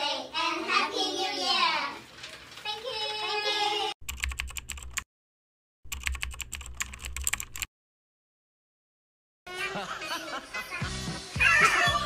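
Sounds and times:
keyboard typing: 0:04.0 - 0:05.1, 0:05.9 - 0:07.7.

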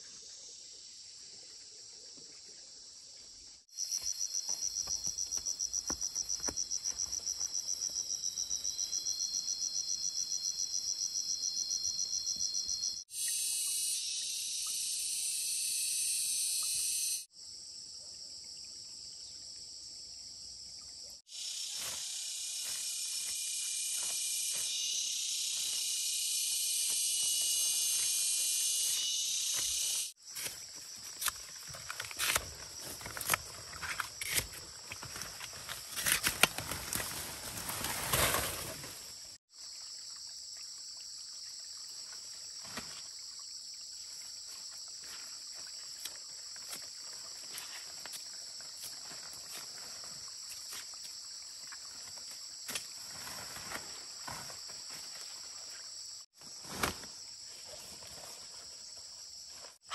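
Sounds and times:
insect pulsing trill: 0:03.8 - 0:17.3, 0:21.3 - 0:30.2
shrill insect buzz: 0:03.8 - 0:17.3, 0:21.3 - 0:30.2.

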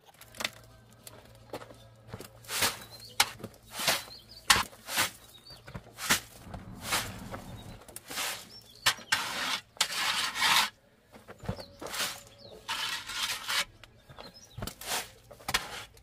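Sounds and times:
birds chirping faintly: 0:00.5 - 0:10.2, 0:10.8 - 0:16.0
trowel scraping wet concrete: 0:02.4 - 0:05.3, 0:05.9 - 0:10.8, 0:11.4 - 0:16.0.

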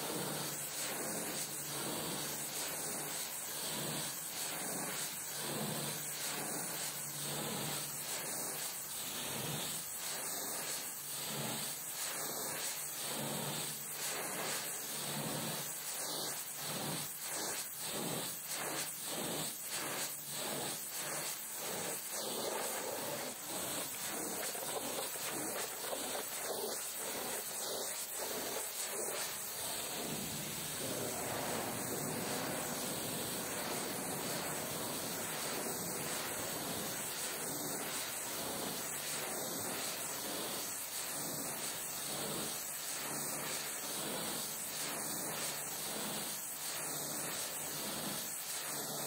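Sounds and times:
pressure washer spraying water: 0:22.5 - 0:37.7.

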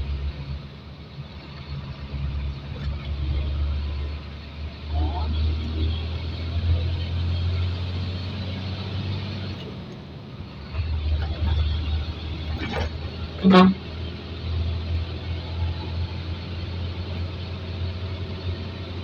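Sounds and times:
truck diesel engine droning: 0:00.0 - 0:19.0
truck horn blast: 0:13.3 - 0:14.1.

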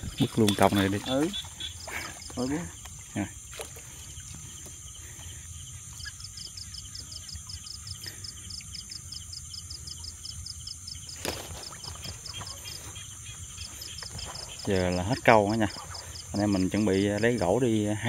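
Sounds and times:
cricket chirping: 0:00.0 - 0:18.0
high insect drone: 0:00.0 - 0:18.0.

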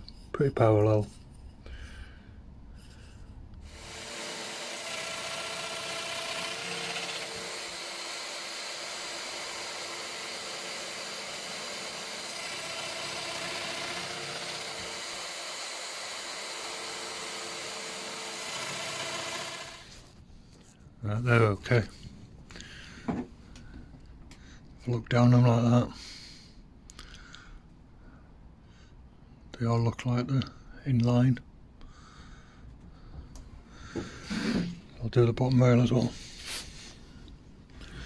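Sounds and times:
power joiner running: 0:03.6 - 0:20.0.

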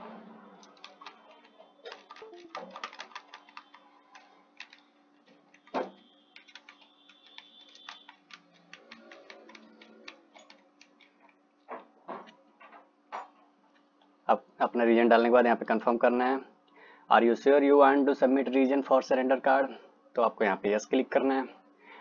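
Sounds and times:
faint steady hum: 0:00.0 - 0:22.0
keyboard keystroke clicks: 0:01.9 - 0:04.8, 0:06.4 - 0:11.2.

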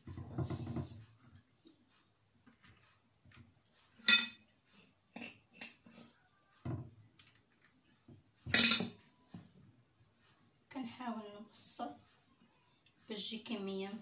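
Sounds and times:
spoon clinking against glass bowl: 0:04.1 - 0:04.4.

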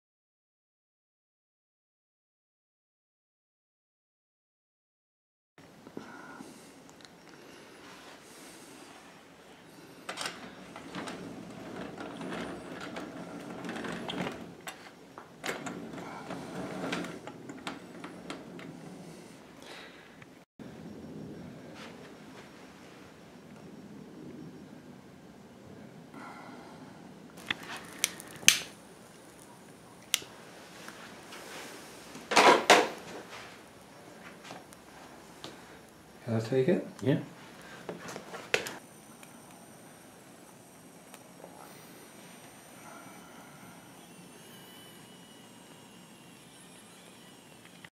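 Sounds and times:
toy steam train rattling on track: 0:43.1 - 0:47.9.

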